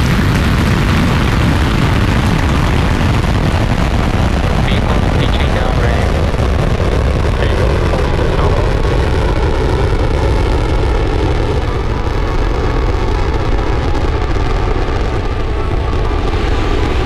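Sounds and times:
deep rocket engine rumble: 0.0 - 17.0.

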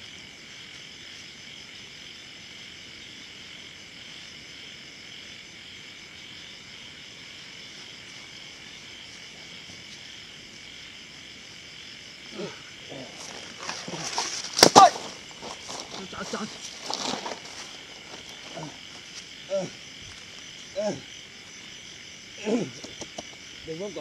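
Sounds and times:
crickets and insects trilling: 0.0 - 24.0.

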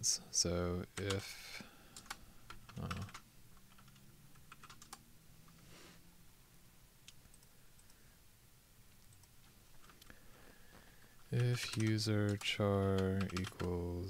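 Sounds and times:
faint keyboard typing: 0.9 - 5.6, 7.0 - 8.0, 8.9 - 10.2, 10.8 - 14.0.

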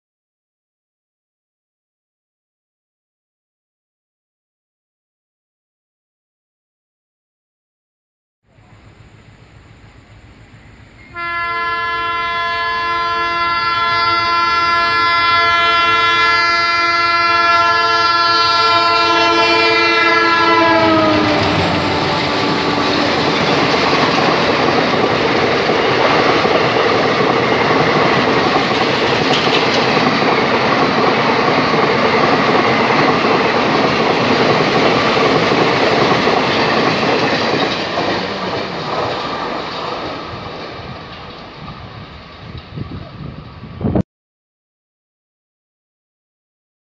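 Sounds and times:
locomotive horn blast: 11.0 - 23.3
train coaches clattering on rails: 20.2 - 43.7.

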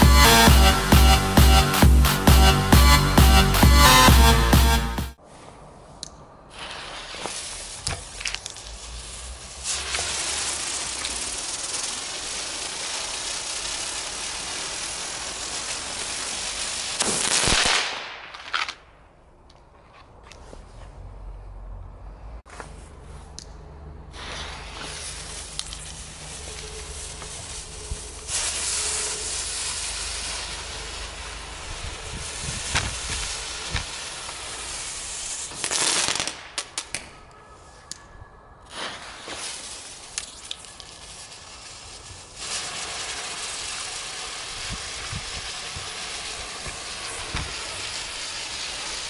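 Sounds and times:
firework sparks hissing: 0.0 - 5.1, 6.4 - 18.5, 24.1 - 37.0, 38.7 - 49.0
sharp firework pops: 6.5 - 8.8, 17.0 - 18.9, 32.1 - 34.8, 38.7 - 41.0, 44.7 - 49.0.

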